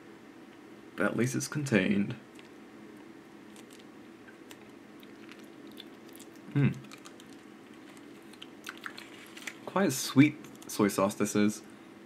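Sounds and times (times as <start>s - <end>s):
low steady hum: 0.0s - 12.0s
sticky clicks of chopsticks stirring: 3.5s - 9.6s, 10.4s - 10.8s.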